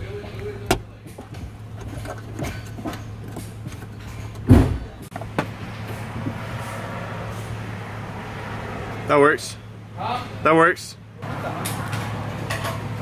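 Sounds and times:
heavy thump: 0:04.4 - 0:05.6.

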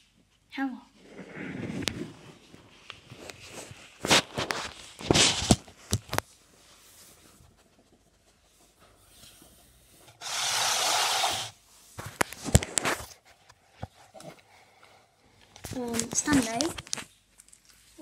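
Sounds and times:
handling noise on phone microphone: 0:00.9 - 0:10.2, 0:11.7 - 0:14.4, 0:15.6 - 0:18.0.

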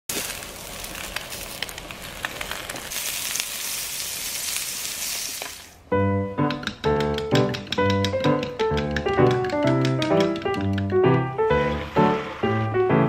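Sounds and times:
butter bubbling in a pan: 0:00.1 - 0:05.6
food sizzling in a frying pan: 0:00.1 - 0:05.8.

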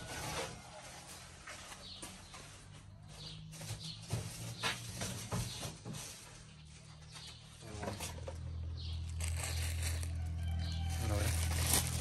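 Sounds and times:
birds chirping: 0:01.1 - 0:11.8.

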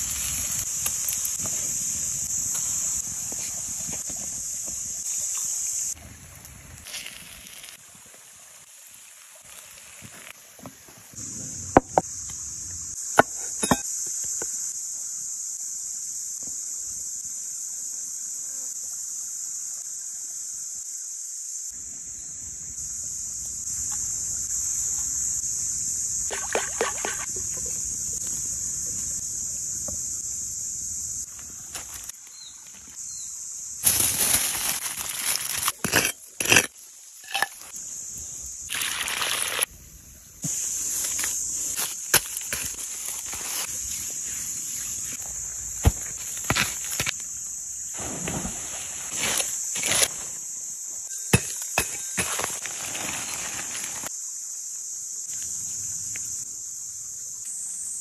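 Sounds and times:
high hiss of woods: 0:00.0 - 0:13.2, 0:22.7 - 0:35.9, 0:36.6 - 0:58.0
tool digging dry soil: 0:33.8 - 0:37.7, 0:40.4 - 0:43.8, 0:45.8 - 0:47.2.

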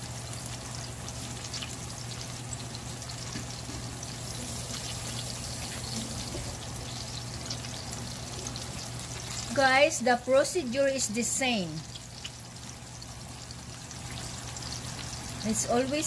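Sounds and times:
fish frying in oil: 0:00.0 - 0:16.0.

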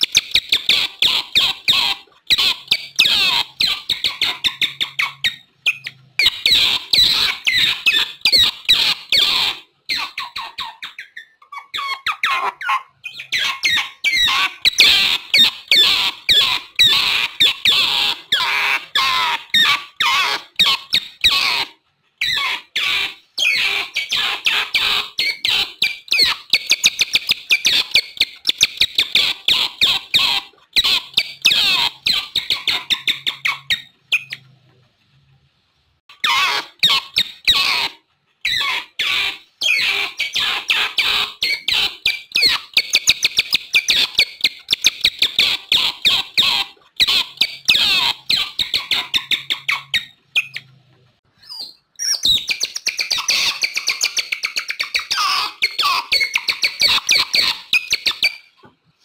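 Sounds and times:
otters chirping and squeaking: 0:00.0 - 0:35.3, 0:36.1 - 0:58.7.

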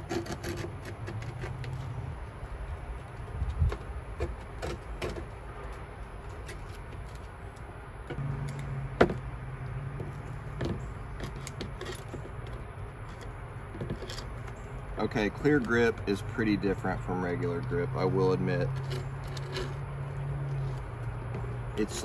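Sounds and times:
hand tool scraping board edge: 0:00.0 - 0:02.0, 0:03.6 - 0:05.4, 0:10.6 - 0:12.4, 0:18.6 - 0:19.8, 0:21.4 - 0:22.0.

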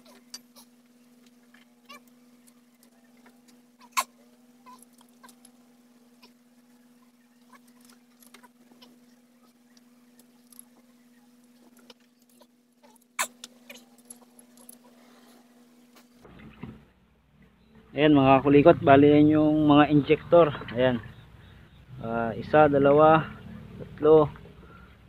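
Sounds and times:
steady low hum: 0:00.0 - 0:25.0
metal tools clicking and scraping: 0:11.5 - 0:15.0.

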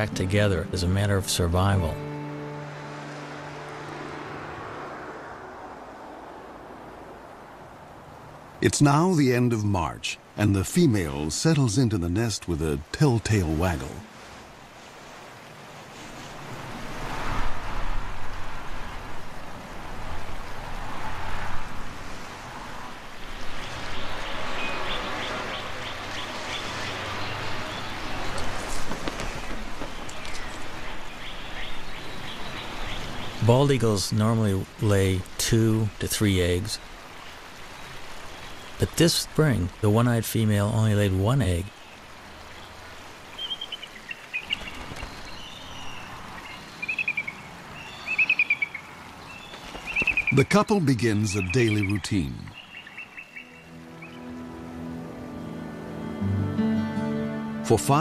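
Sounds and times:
outdoor background hiss: 0:00.0 - 0:58.0
wind blowing in gusts: 0:14.0 - 0:33.5
high bird chirps: 0:43.3 - 0:50.4, 0:51.3 - 0:54.3.

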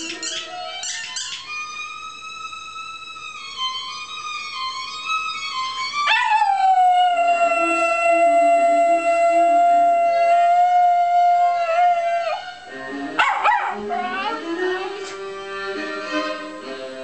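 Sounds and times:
dog yelp-howl: 0:00.0 - 0:01.4, 0:06.0 - 0:12.6, 0:13.2 - 0:15.0
viola playing: 0:00.0 - 0:17.0
dog howling: 0:06.0 - 0:15.1.

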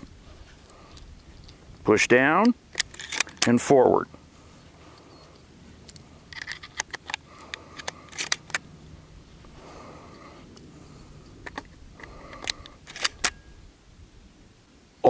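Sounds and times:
shotgun shells clicking into magazine: 0:02.4 - 0:03.5, 0:05.9 - 0:08.6, 0:11.4 - 0:13.4.

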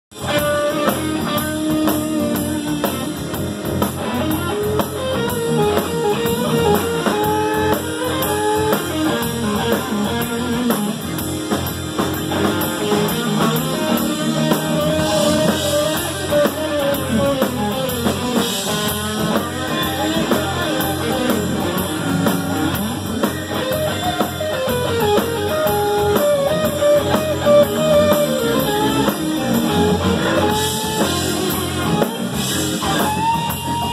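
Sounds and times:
drum kit cymbal pattern: 0:00.1 - 0:33.9
electric bass: 0:00.1 - 0:33.9
electric guitar melody: 0:00.1 - 0:33.9.

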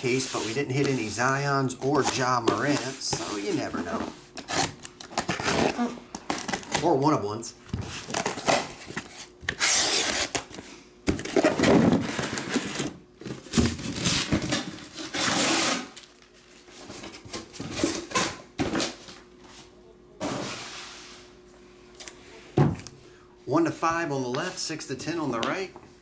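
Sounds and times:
cardboard and plastic rustling: 0:00.7 - 0:19.3.

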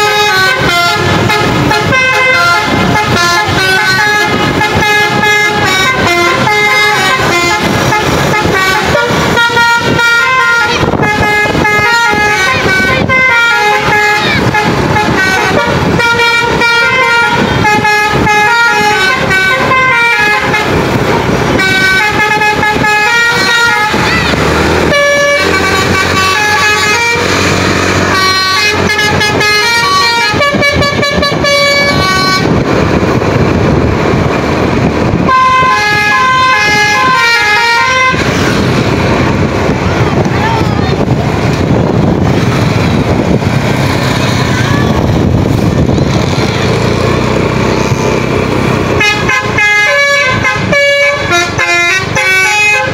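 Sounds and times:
musical air horn melody: 0:00.0 - 0:32.6, 0:35.2 - 0:38.4, 0:49.0 - 0:52.9.

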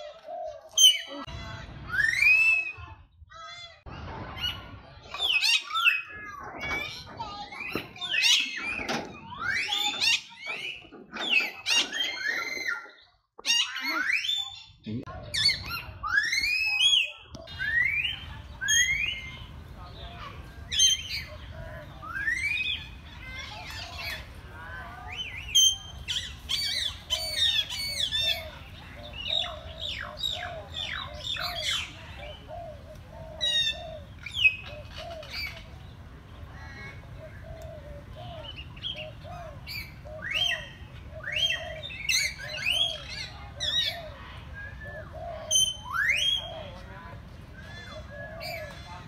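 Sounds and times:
parrots squawking and whistling: 0:00.7 - 0:02.8, 0:05.2 - 0:19.6, 0:25.1 - 0:35.7, 0:38.0 - 0:46.9.

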